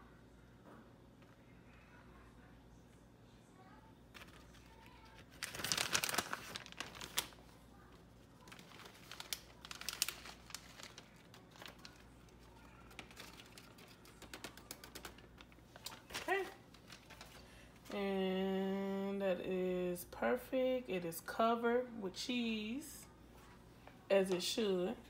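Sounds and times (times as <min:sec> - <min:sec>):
plastic bag crinkling: 0:04.1 - 0:18.0.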